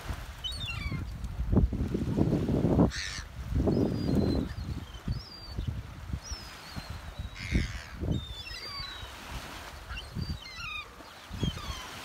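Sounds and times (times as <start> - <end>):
wind rumble on microphone: 0.0 - 8.5
gulls calling: 0.4 - 1.1, 2.8 - 12.0.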